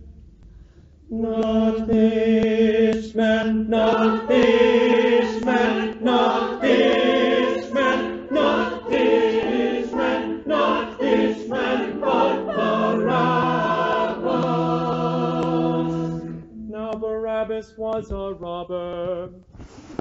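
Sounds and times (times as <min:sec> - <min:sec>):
church choir singing: 0:01.1 - 0:16.6.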